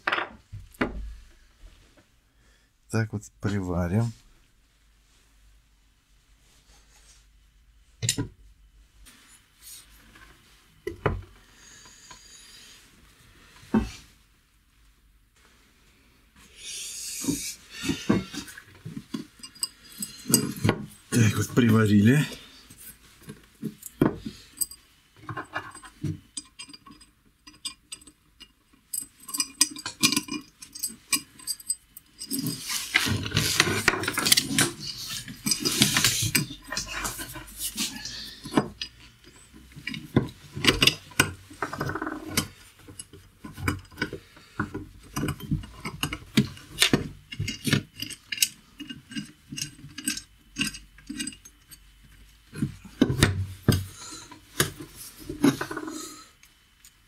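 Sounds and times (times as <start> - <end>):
metal clinks knocks and scrapes: 17.8 - 21.6, 23.6 - 55.8.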